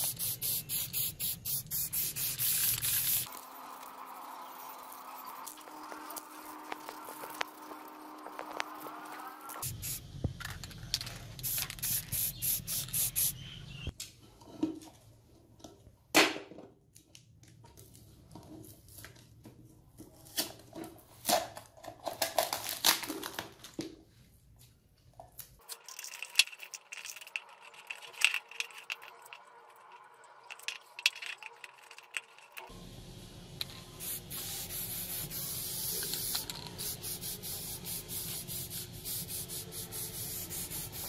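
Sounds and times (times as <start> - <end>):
tape tearing and crinkling: 20.2 - 23.8.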